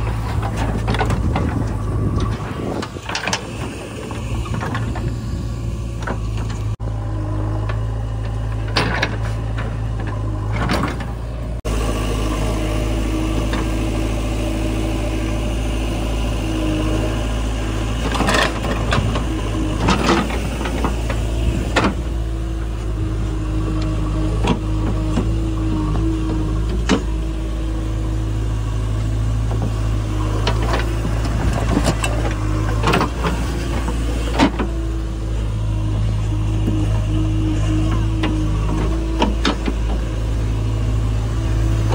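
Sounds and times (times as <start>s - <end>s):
knocks and clanks: 0.0s - 5.2s, 7.6s - 11.2s
diesel engine running: 0.0s - 41.9s.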